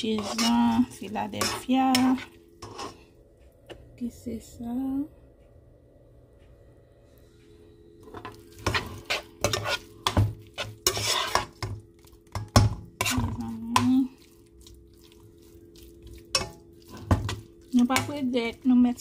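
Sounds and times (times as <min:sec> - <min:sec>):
metal spoon scraping pot: 0:00.0 - 0:03.1, 0:08.1 - 0:11.7, 0:12.4 - 0:13.9.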